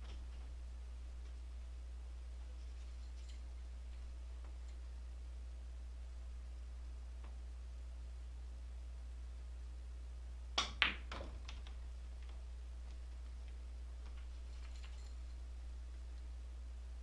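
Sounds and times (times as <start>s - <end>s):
steady low hum: 0.0s - 17.0s
billiard balls clicking: 10.6s - 15.3s.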